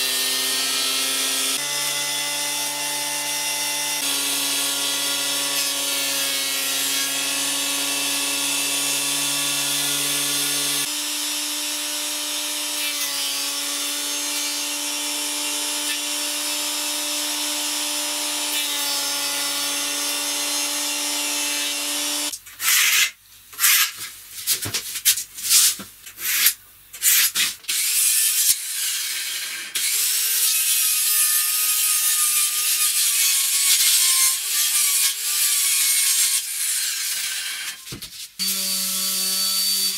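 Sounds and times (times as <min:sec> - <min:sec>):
circular saw cutting plywood: 0:00.0 - 0:23.8.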